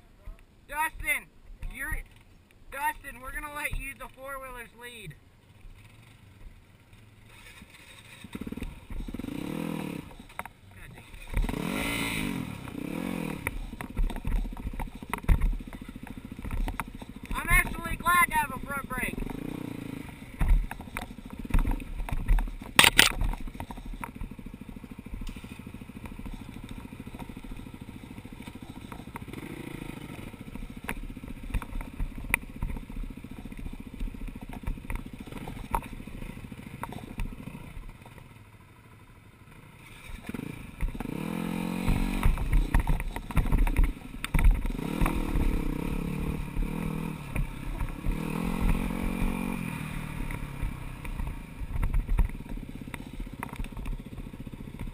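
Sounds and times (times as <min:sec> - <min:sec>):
dirt bike engine revving: 0:05.8 - 0:38.0, 0:39.4 - 0:54.9
stones and chassis clattering: 0:06.9 - 0:09.2, 0:13.5 - 0:18.0, 0:20.3 - 0:29.5, 0:30.4 - 0:36.1, 0:41.9 - 0:45.5.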